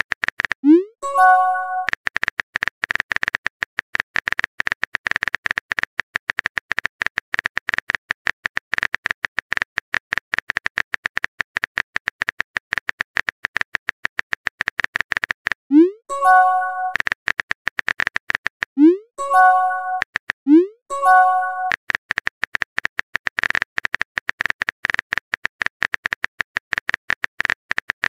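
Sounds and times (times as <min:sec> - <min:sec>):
phone keyboard typing clicks: 0:21.0 - 0:28.0.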